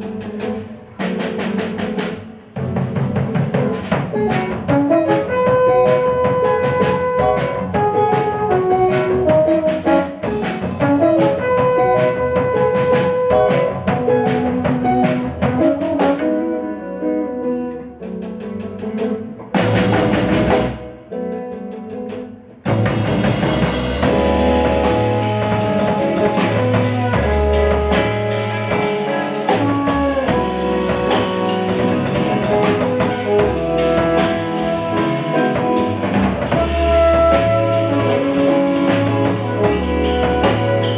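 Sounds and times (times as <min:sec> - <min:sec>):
low bass notes: 0:00.0 - 0:21.2, 0:22.5 - 0:40.9
live jazz band playing: 0:00.0 - 0:40.9.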